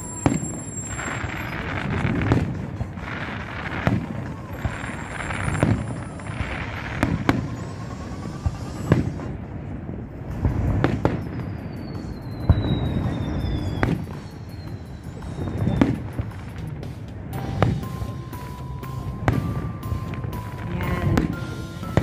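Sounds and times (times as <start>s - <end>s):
falling high whistle: 0.0s - 1.9s, 3.9s - 9.3s, 11.0s - 16.3s
fireworks bangs: 0.0s - 22.0s.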